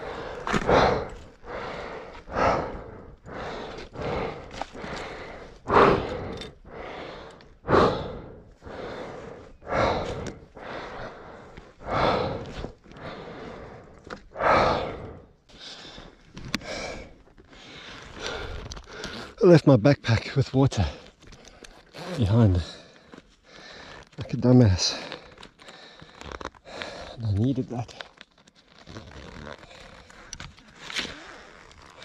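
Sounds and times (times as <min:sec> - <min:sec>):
man breathing hard: 0:00.0 - 0:19.4, 0:22.5 - 0:24.1, 0:24.9 - 0:27.2.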